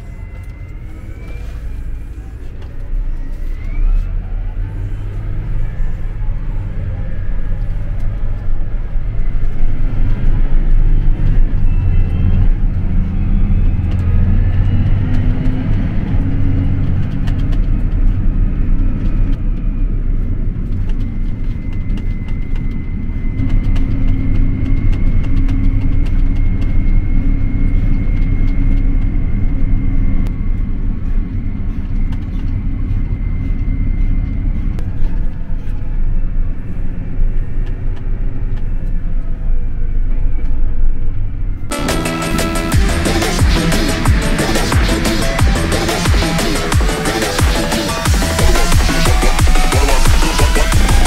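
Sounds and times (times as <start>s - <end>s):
thin high whine: 0.0s - 16.7s, 41.5s - 51.0s
tractor engine rumble: 0.0s - 51.0s.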